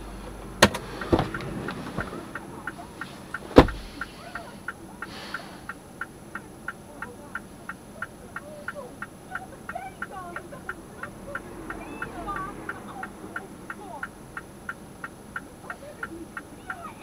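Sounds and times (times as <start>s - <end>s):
flasher relay ticking: 0.0s - 17.0s
sharp thump: 3.4s - 4.0s.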